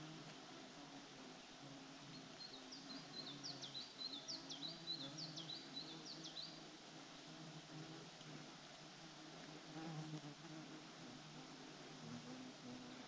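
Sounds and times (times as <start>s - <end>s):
songbird singing high falling notes: 2.1s - 6.6s.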